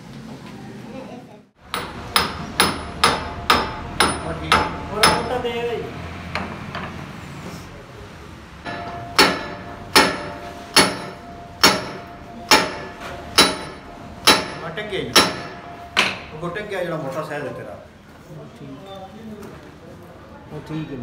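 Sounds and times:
hammer striking steel: 1.6s - 5.7s, 6.3s - 7.1s, 8.6s - 16.6s.

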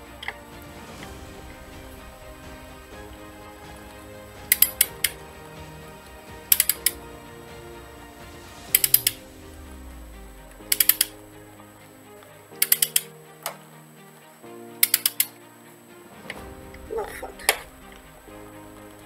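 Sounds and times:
ratchet wrench clicking: 10.7s - 11.1s, 12.6s - 13.0s, 14.8s - 15.3s.

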